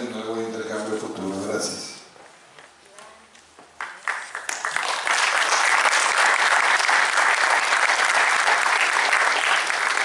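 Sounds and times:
audience applauding: 3.8s - 10.0s.

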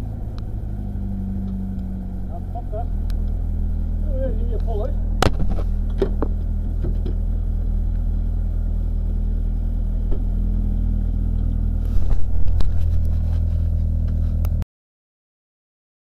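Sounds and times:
car engine idling: 0.0s - 14.6s
knocks and clatter: 5.2s - 7.2s.

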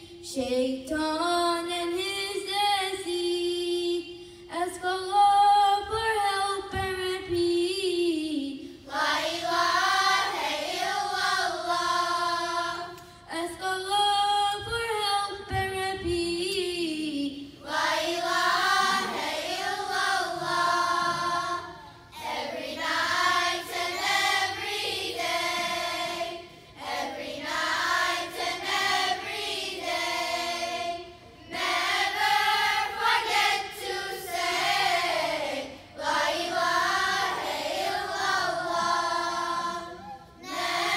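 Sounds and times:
girls' choir singing: 8.8s - 13.0s, 17.6s - 40.9s.

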